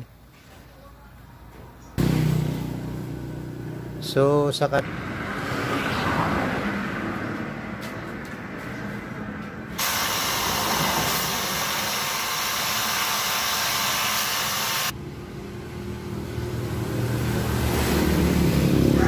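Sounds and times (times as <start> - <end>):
grinder buffing rubber: 9.8 - 14.9.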